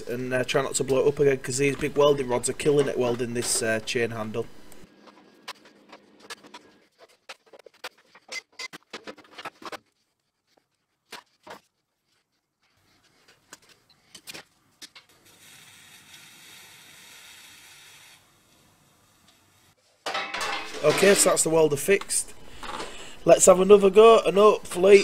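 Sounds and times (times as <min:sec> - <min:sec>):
steady hiss: 0:15.1 - 0:19.9
clicks and rattles of sheet metal: 0:20.1 - 0:21.2.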